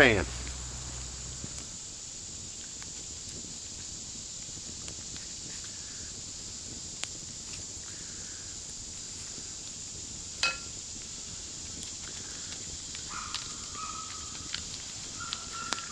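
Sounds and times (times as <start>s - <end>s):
campfire crackle: 0.0s - 15.9s
steady high hiss: 0.0s - 15.9s
metallic clink of skillet: 10.4s - 10.8s.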